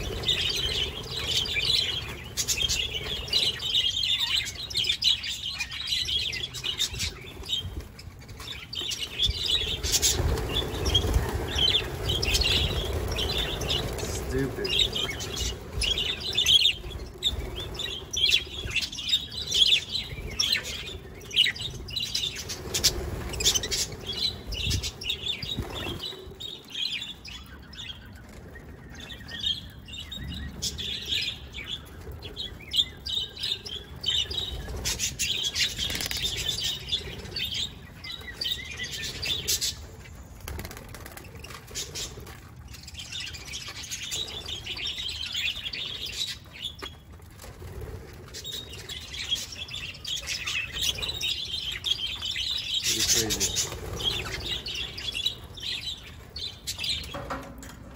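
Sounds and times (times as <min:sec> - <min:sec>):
wings flapping: 0:00.0 - 0:05.4, 0:06.5 - 0:26.8, 0:30.5 - 0:57.9
budgerigars chirping and chattering: 0:00.0 - 0:47.0, 0:48.3 - 0:57.4.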